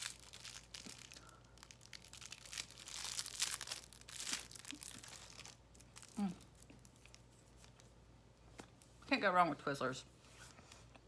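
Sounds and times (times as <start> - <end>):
plastic candy wrapper crinkling: 0.0 - 8.0.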